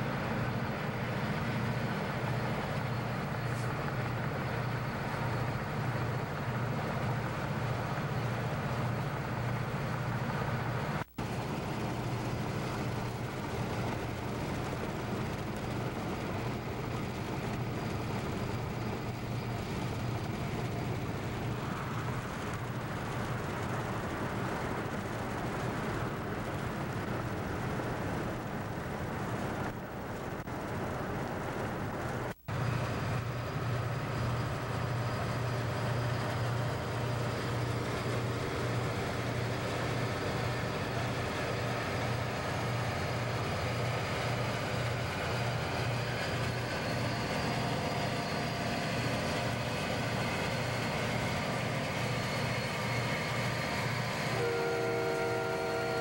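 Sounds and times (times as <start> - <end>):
diesel locomotive engine throbbing: 0.0 - 56.0
road and wind noise in car: 2.3 - 36.4
locomotive air horn: 51.8 - 56.0.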